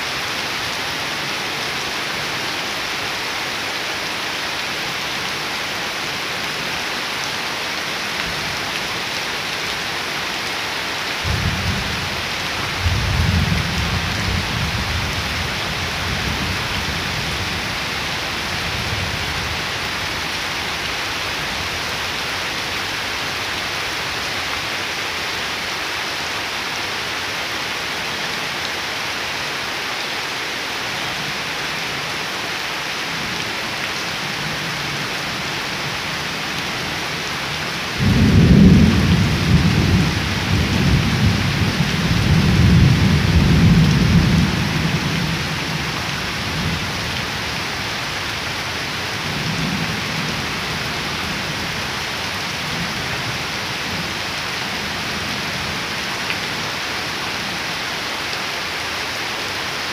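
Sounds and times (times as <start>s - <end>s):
heavy rain on ground and leaves: 0.0s - 59.9s
thunder rumbling: 38.0s - 45.3s.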